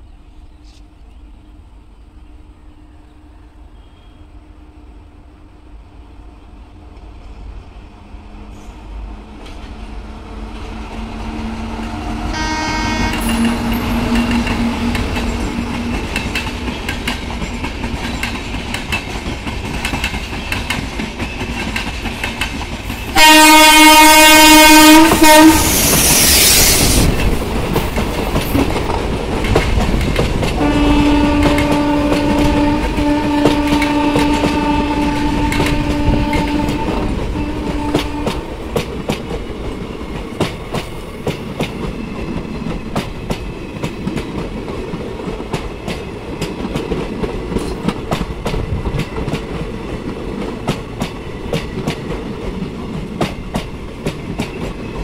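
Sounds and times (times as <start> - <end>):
locomotive air horn: 12.3 - 14.8, 23.1 - 26.9, 30.6 - 38.4
train wheels clattering over rail joints: 14.0 - 23.2, 25.8 - 55.0
rushing hiss: 25.5 - 28.6.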